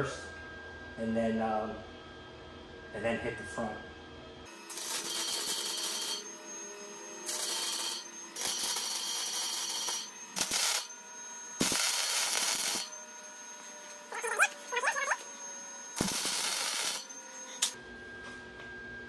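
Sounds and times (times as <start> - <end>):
welding arc hiss: 4.6 - 6.3, 7.0 - 10.9, 11.6 - 12.9, 16.0 - 17.8.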